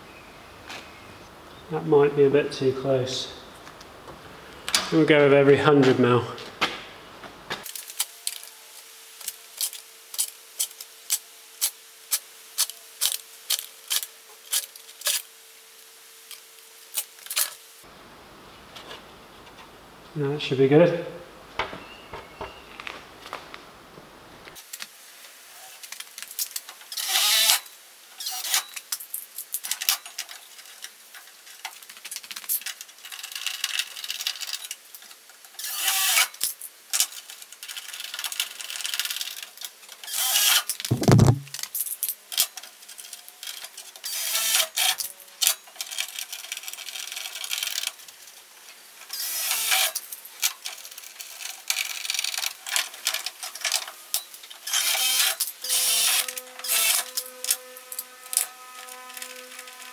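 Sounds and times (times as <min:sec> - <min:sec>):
power drill boring: 0:27.0 - 0:27.6, 0:35.6 - 0:36.3, 0:44.0 - 0:45.0, 0:49.2 - 0:50.0, 0:54.6 - 0:59.9
heavy knock: 0:40.9 - 0:41.5.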